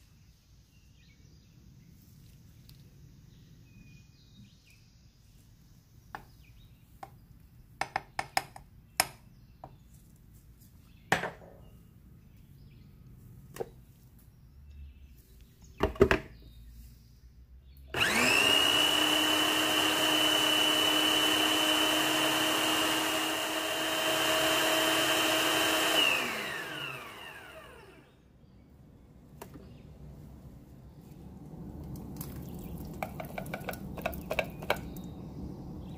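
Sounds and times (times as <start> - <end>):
food processor motor whining: 17.9 - 28.2.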